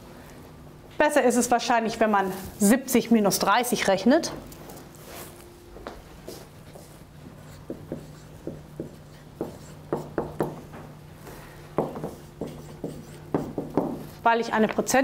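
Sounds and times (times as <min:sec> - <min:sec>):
steady low hum: 0:00.0 - 0:15.0
marker squeaking on whiteboard: 0:07.4 - 0:10.3, 0:12.1 - 0:13.7.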